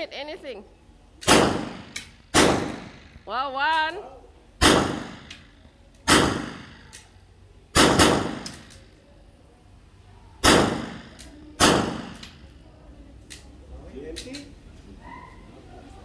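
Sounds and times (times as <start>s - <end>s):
echoing gunshots: 1.2s - 3.3s, 4.6s - 6.9s, 7.7s - 8.7s, 10.4s - 12.4s.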